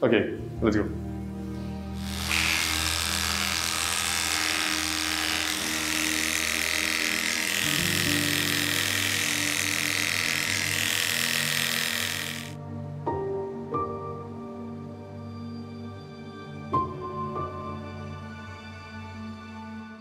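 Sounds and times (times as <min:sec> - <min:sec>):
electric clippers buzzing: 0:01.9 - 0:12.6.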